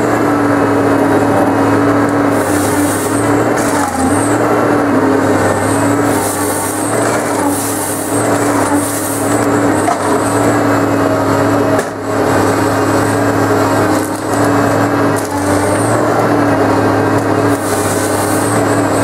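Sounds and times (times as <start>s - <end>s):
harvester engine and hydraulics drone: 0.0s - 19.0s.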